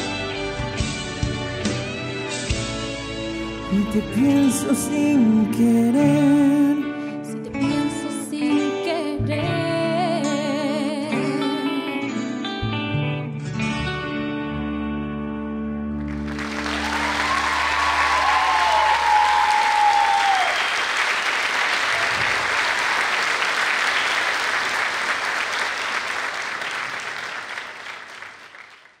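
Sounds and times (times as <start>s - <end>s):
audience applause: 16.0s - 29.0s
high whoop: 16.6s - 20.8s.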